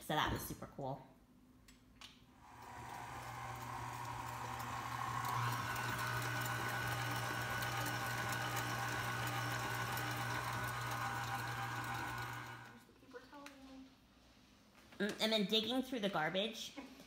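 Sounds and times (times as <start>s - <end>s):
stand mixer motor hum and whine: 2.4s - 12.8s.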